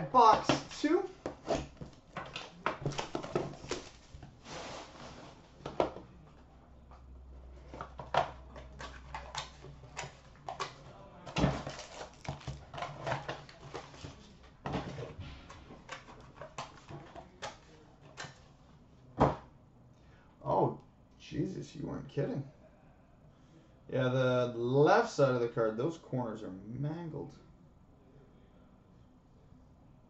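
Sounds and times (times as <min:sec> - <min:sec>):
plastic wrap crinkling: 0:00.2 - 0:05.6, 0:08.7 - 0:14.4.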